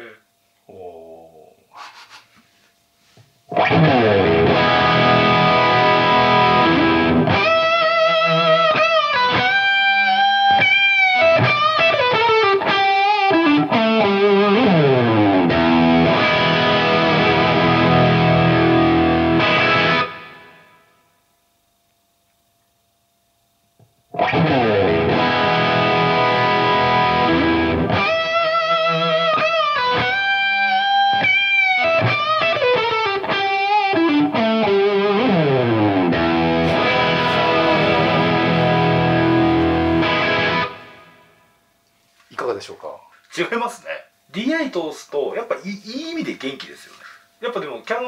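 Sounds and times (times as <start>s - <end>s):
distorted electric guitar lead: 3.5s - 20.9s, 24.1s - 41.5s.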